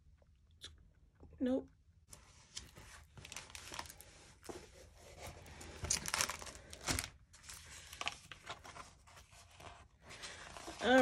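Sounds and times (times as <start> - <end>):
plastic film crinkling: 2.9 - 4.5, 5.6 - 9.0.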